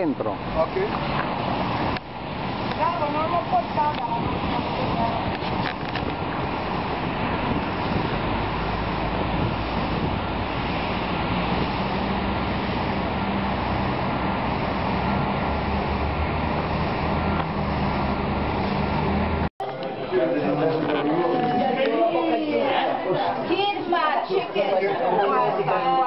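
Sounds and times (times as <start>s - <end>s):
traffic noise: 0.0s - 26.0s
low engine hum: 0.3s - 19.5s
wind on microphone: 0.4s - 19.5s.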